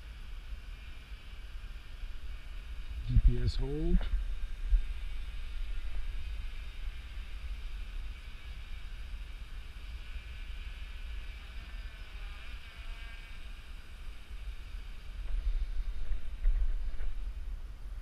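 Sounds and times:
quadcopter buzzing: 0.0 - 18.0
wind rumble on microphone: 2.0 - 18.0.

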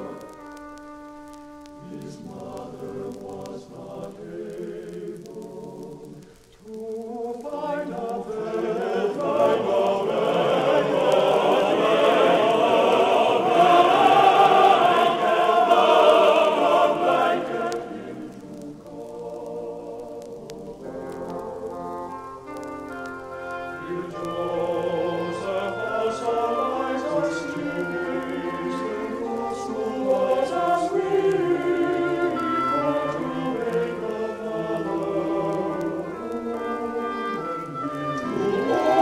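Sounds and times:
choir singing sacred music: 0.0 - 0.3, 1.7 - 39.0.

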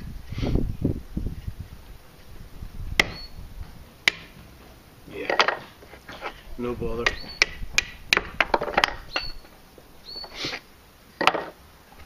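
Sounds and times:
sharp wooden knocks: 3.0 - 3.2, 4.0 - 4.4, 7.0 - 9.4, 11.2 - 11.6.

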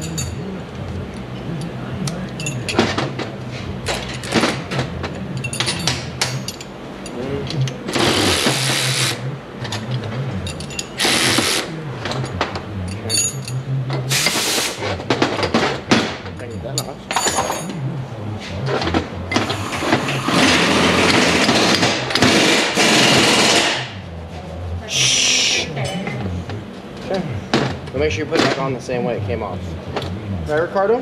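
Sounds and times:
power ratchet whirring: 7.9 - 12.4, 18.8 - 24.0
tools clicking and knocking: 16.8 - 17.8.

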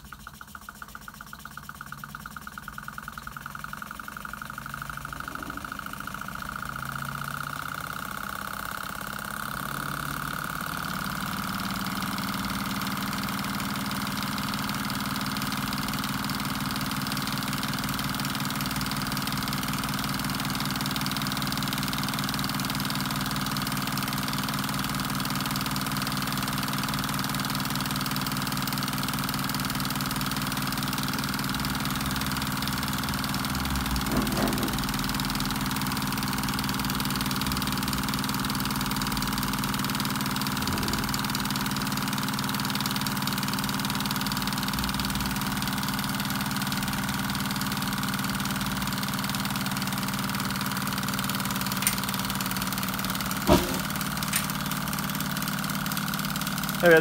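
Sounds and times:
stirling engine running: 1.6 - 14.5
knock: 53.5 - 53.9.

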